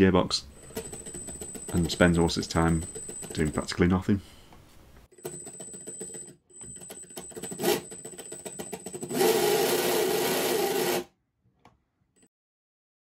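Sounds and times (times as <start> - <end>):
motor driving plastic gearbox: 6.6 - 11.1.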